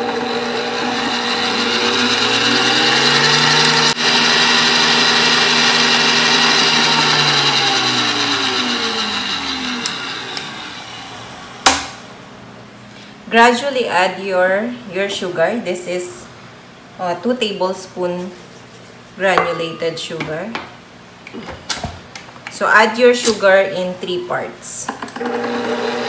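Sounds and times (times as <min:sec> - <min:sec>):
stand mixer whisking: 0:00.0 - 0:11.0, 0:25.2 - 0:26.0.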